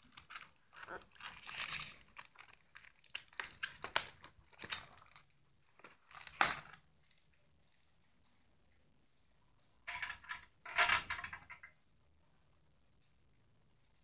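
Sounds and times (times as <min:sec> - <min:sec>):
cardboard packaging crinkling: 0:00.0 - 0:07.9.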